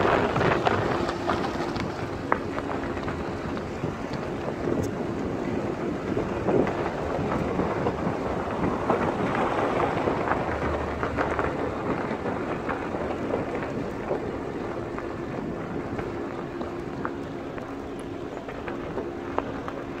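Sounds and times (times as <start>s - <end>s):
tyres on gravel road: 0.0s - 20.0s
wind on microphone: 0.0s - 20.0s.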